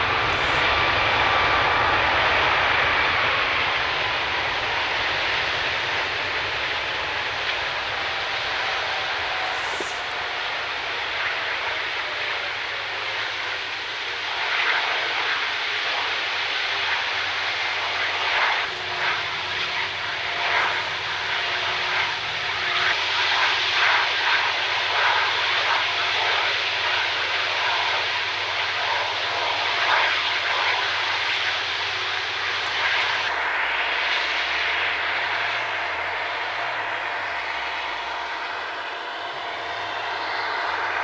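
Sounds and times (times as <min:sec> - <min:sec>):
jet engine rushing noise: 0:00.0 - 0:26.0, 0:27.6 - 0:41.0.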